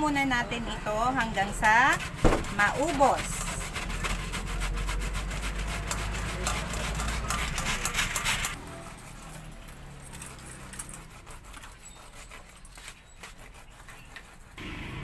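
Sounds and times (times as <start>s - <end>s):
grater rasping: 1.5s - 14.6s.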